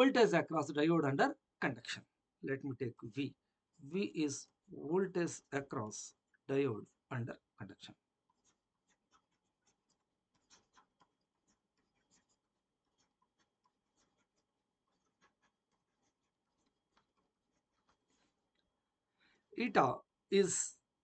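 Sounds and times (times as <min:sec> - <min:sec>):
stylus scratching on a tablet: 0:07.9 - 0:19.0.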